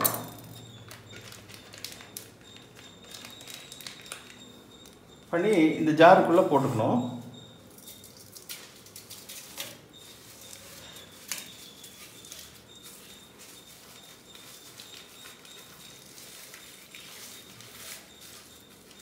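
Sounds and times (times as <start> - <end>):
plastic pouch crinkling: 0.9 - 5.0, 8.0 - 19.0.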